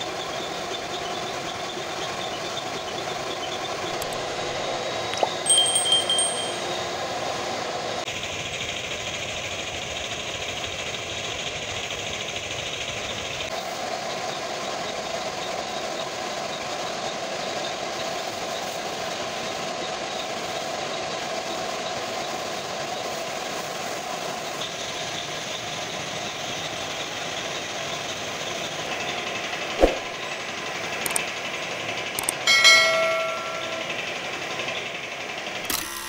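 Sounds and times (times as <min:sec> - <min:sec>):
bright chime: 0:05.3 - 0:06.9, 0:32.5 - 0:34.2.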